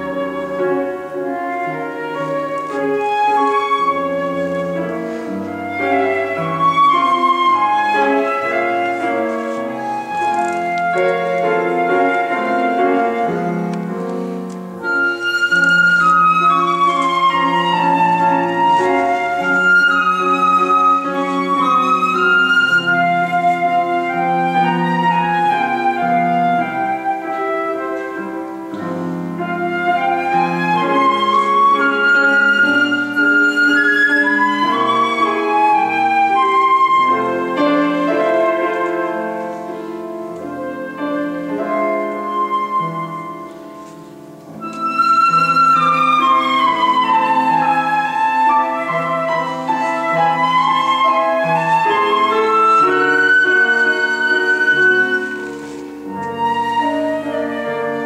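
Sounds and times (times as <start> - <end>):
flute playing classical melody: 0.0 - 58.0
grand piano accompaniment: 0.0 - 58.0.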